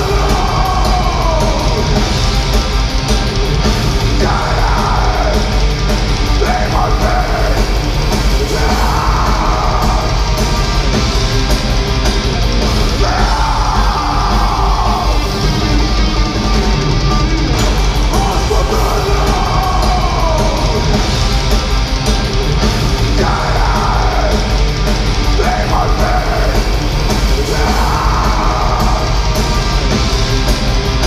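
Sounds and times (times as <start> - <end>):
harsh screamed vocals: 0.0 - 2.2, 3.9 - 11.0, 12.7 - 17.2, 18.1 - 21.1, 23.0 - 30.0
metal band playing: 0.0 - 31.0.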